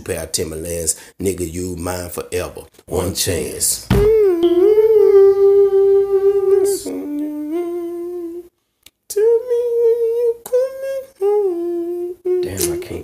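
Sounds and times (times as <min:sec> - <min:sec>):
person humming a slow melody: 0:04.0 - 0:08.5, 0:09.1 - 0:12.8.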